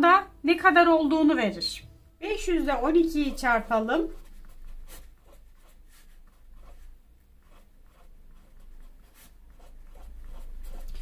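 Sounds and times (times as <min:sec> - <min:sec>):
pen scratching on paper: 0:02.3 - 0:11.0.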